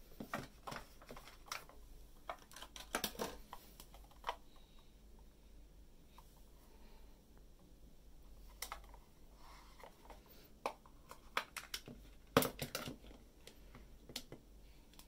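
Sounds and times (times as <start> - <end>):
plastic packaging crackling: 0.3 - 4.4.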